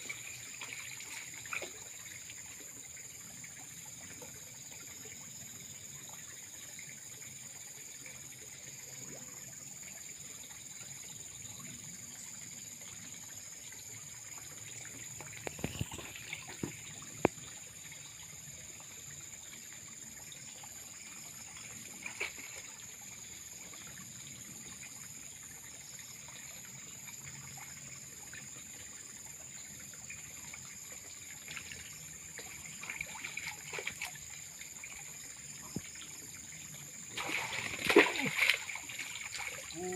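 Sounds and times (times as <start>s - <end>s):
water trickling in a pond: 0.0s - 39.9s
water splashing: 21.6s - 22.8s, 31.4s - 34.3s, 37.1s - 39.9s.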